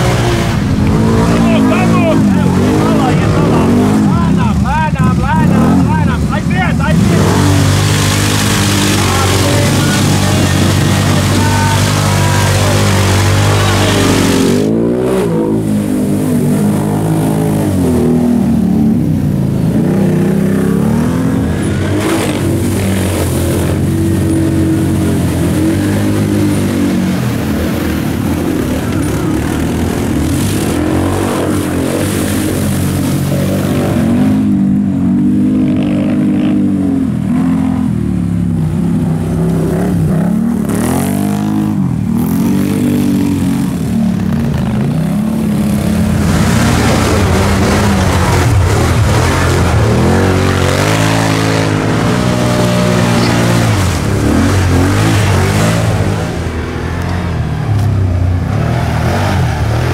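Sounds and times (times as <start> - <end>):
atv engines revving: 0.0 - 59.9.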